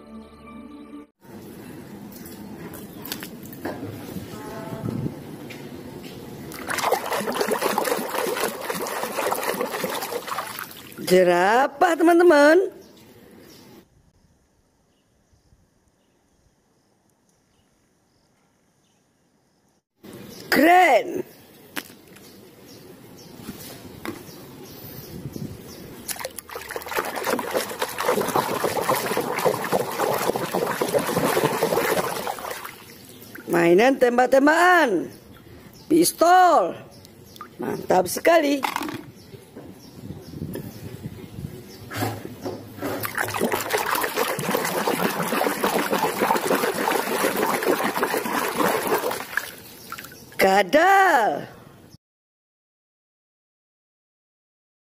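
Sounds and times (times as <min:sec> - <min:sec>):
hand splashing water: 0:06.5 - 0:11.0, 0:26.1 - 0:33.5, 0:43.0 - 0:50.2.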